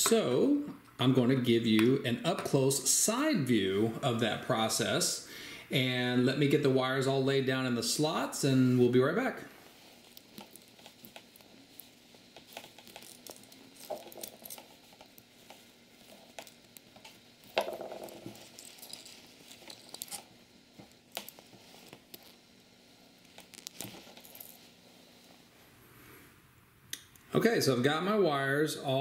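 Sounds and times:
fingers handling wires: 10.0 - 22.5, 23.2 - 24.5.

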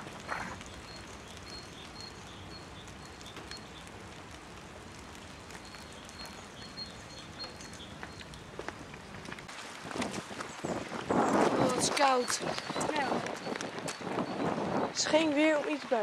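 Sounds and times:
light rain hiss: 0.0 - 16.0
small bird chirping: 0.2 - 3.9, 5.4 - 9.2.

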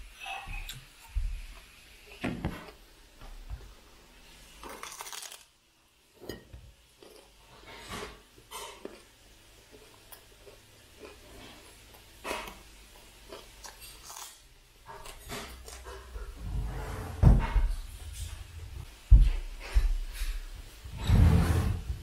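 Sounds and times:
broccoli snapping and rustling: 4.6 - 5.5.

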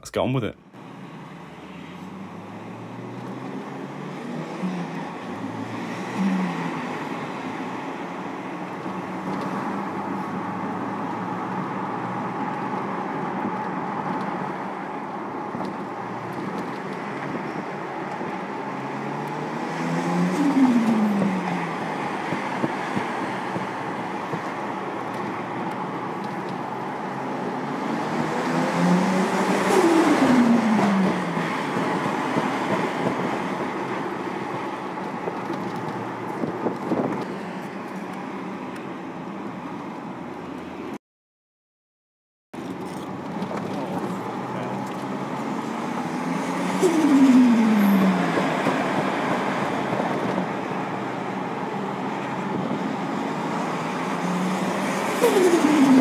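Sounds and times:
road noise: 0.0 - 41.0, 42.6 - 56.0
car engine accelerating hard: 0.8 - 37.3, 43.4 - 56.0.

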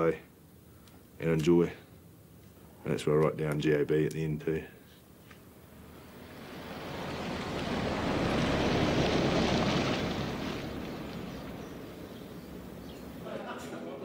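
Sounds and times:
vehicle driving past: 5.6 - 13.3.

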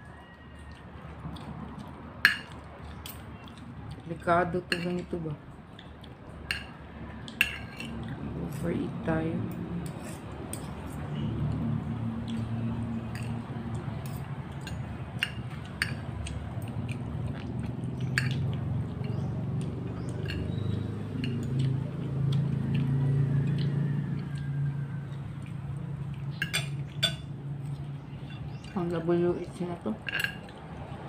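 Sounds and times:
chewing: 0.0 - 8.4, 9.5 - 28.9, 30.2 - 31.0
cutlery scraping a plate: 6.5 - 8.2, 9.8 - 11.0, 14.0 - 16.0, 18.2 - 19.2, 20.2 - 21.5, 26.4 - 27.3.

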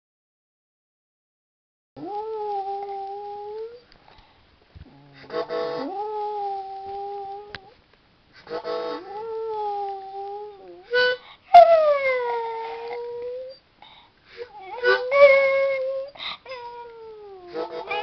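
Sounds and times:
dog howling: 2.0 - 3.8, 4.8 - 7.8, 9.0 - 13.6, 14.5 - 18.0.

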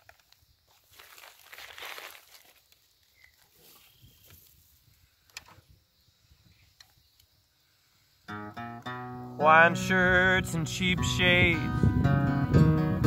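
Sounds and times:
acoustic guitar playing: 8.3 - 13.0.

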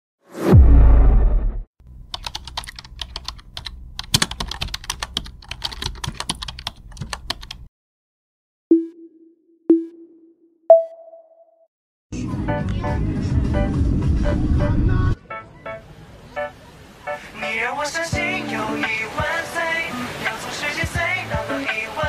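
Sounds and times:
keyboard typing: 2.1 - 7.7
countdown beeps: 8.7 - 11.6.

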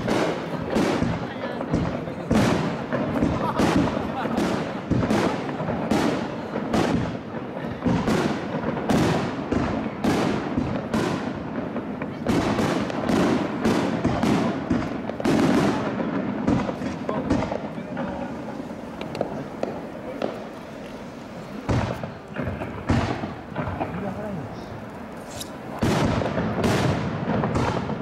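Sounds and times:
fireworks crackle: 0.0 - 28.0.

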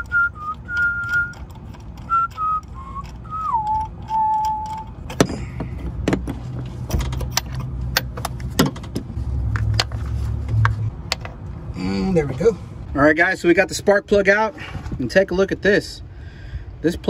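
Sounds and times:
person whistling a tune: 0.0 - 1.5, 2.1 - 4.9
socket wrench metallic clicks: 0.4 - 5.3.

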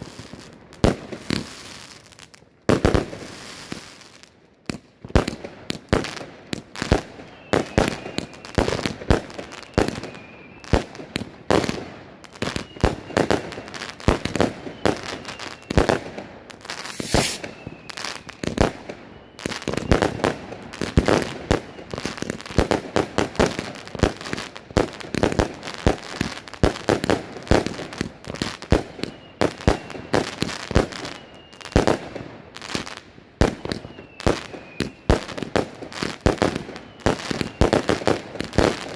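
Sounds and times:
fireworks launching and bursting: 0.0 - 38.9
sharp firework bang: 16.9 - 17.5.

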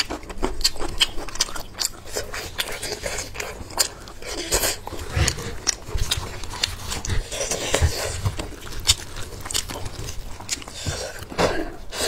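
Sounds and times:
wet tearing and squelching: 0.0 - 11.3
clicks and cracks: 7.8 - 11.2.

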